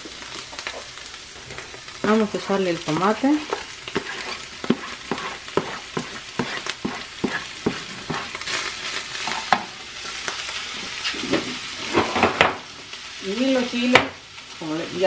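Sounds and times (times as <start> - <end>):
ground beef sizzling in skillet: 0.0 - 15.0
spatula tapping cutting board: 4.0 - 8.3.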